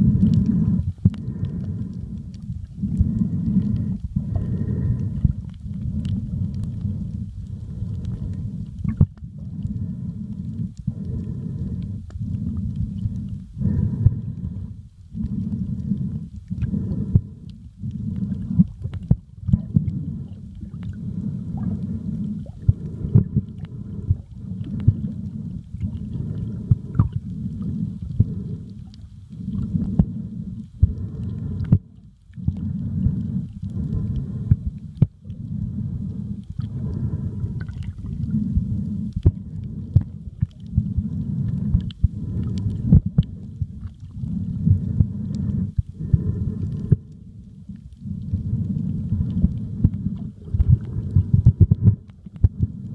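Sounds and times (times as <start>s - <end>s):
sharp underwater clicks: 0.0s - 30.1s
muffled underwater rumble: 0.0s - 52.9s.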